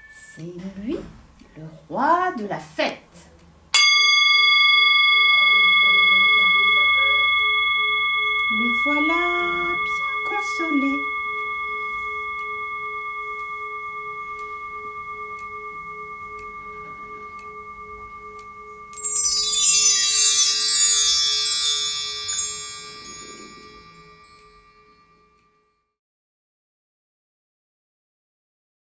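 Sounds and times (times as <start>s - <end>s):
bar chimes swept: 3.8s - 25.2s
brass singing bowl ringing: 3.8s - 25.7s.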